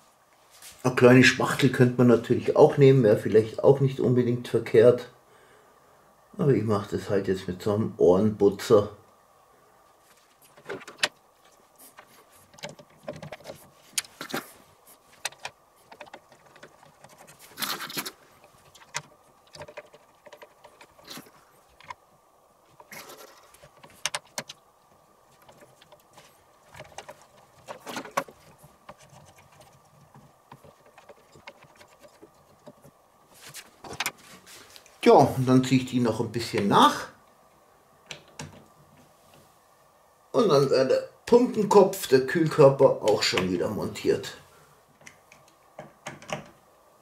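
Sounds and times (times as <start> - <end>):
faint steady hum: 0.0 - 47.0
plastic and metal parts clicking: 12.0 - 14.4, 15.2 - 22.0, 22.7 - 24.6, 25.3 - 33.0.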